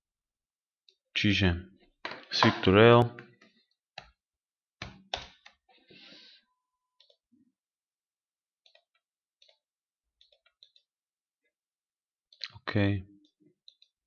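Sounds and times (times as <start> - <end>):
computer mouse clicks: 7.0 - 7.2.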